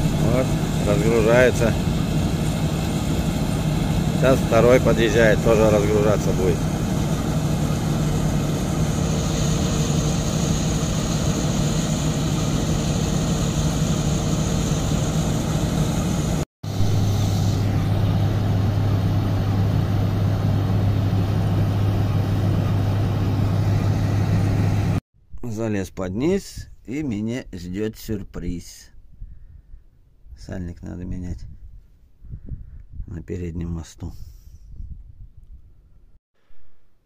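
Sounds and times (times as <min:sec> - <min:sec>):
deep steady hum: 0:00.0 - 0:25.0
diesel engines running: 0:00.0 - 0:25.0.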